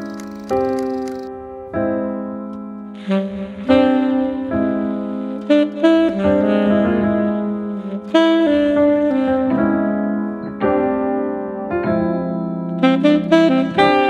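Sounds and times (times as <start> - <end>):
saxophone: 0.0 - 1.3, 3.0 - 11.2, 12.8 - 14.0
piano: 0.0 - 14.0.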